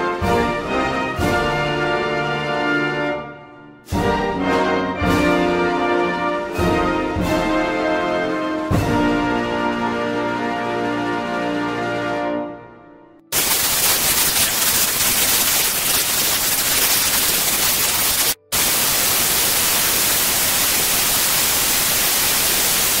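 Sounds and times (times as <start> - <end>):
television static hiss: 13.3 - 23.0.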